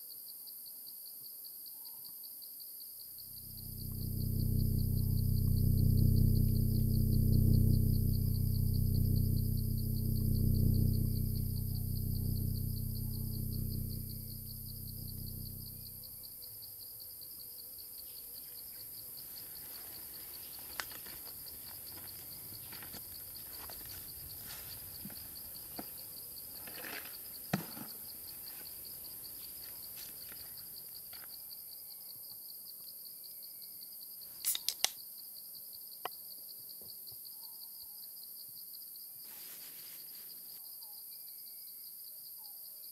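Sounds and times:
insects chirring: 3.0s - 42.5s
low hum: 3.3s - 16.4s, 22.1s - 26.7s.

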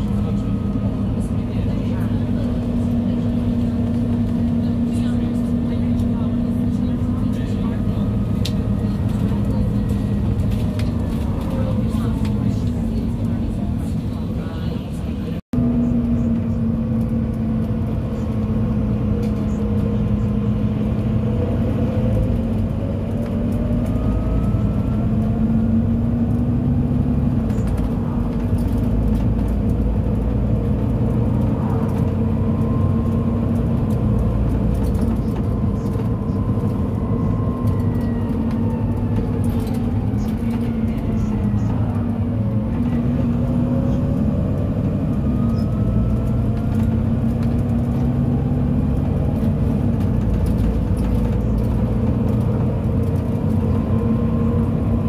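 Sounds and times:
bus diesel engine running: 0.0s - 55.0s.

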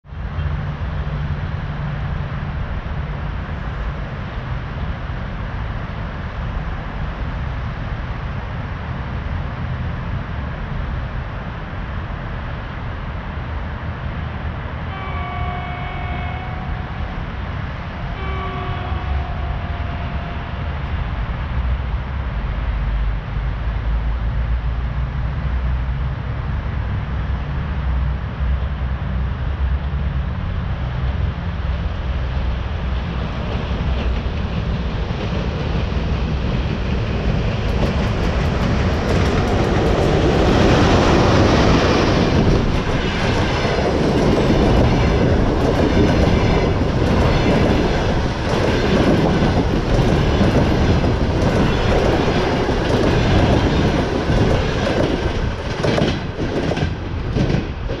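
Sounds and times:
locomotive passing rumble: 0.0s - 58.0s
train wheels clickety-clack: 32.5s - 58.0s.

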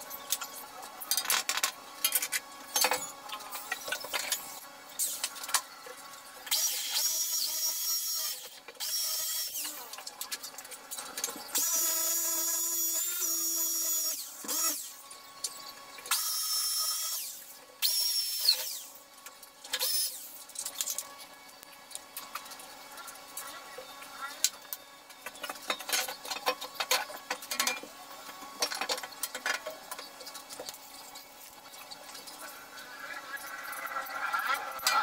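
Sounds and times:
electric drill drilling: 6.5s - 10.0s, 11.5s - 15.0s, 16.1s - 19.0s, 19.8s - 20.4s.

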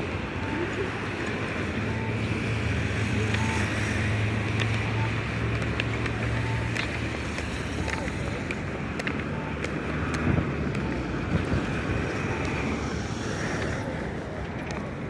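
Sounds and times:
vehicle engine humming: 0.0s - 15.0s
short electronic beeps: 1.6s - 3.9s, 4.7s - 5.4s, 6.2s - 6.9s.

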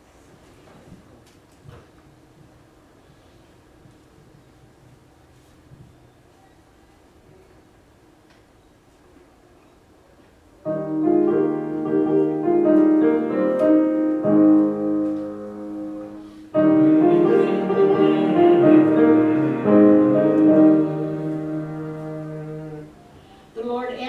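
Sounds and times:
piano playing slow chords: 10.7s - 23.4s.

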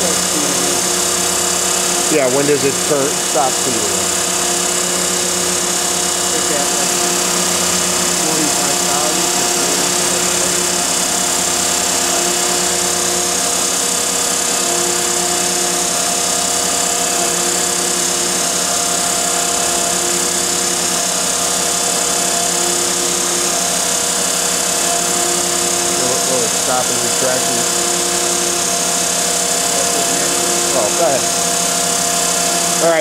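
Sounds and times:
grinding spindle whine: 0.0s - 33.0s
motor hum: 0.0s - 33.0s.

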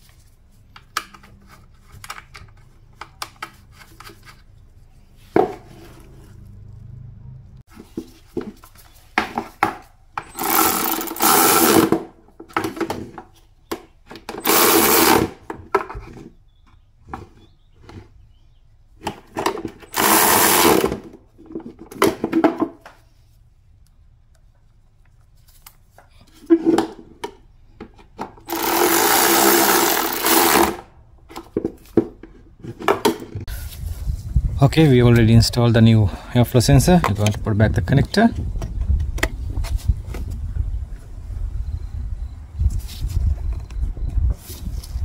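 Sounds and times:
cordless power driver whirring: 10.3s - 12.0s, 14.4s - 15.4s, 19.9s - 21.0s, 28.5s - 30.9s.

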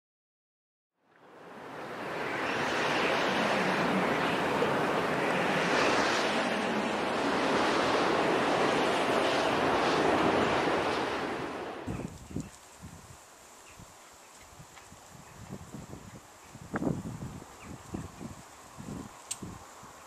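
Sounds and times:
steady rushing noise: 1.2s - 13.6s.

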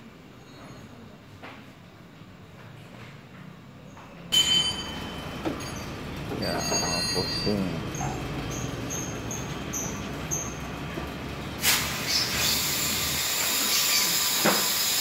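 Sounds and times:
diesel engine rumbling: 4.6s - 13.2s
loud steady hiss: 11.6s - 15.0s.

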